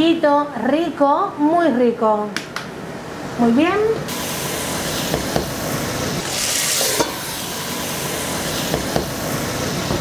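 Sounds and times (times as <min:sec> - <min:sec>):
food sizzling in pots: 0:04.1 - 0:10.0.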